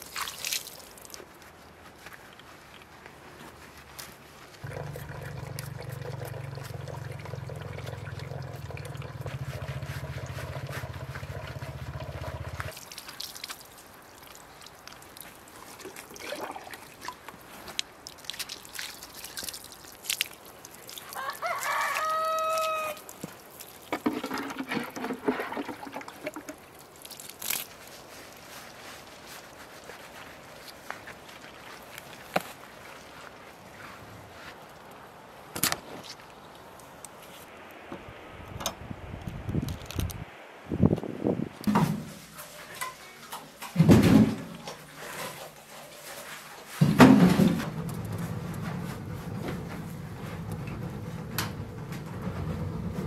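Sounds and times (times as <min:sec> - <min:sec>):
water splashing and dripping: 0:00.0 - 0:02.9, 0:04.6 - 0:29.6
rooster crowing: 0:21.2 - 0:23.0.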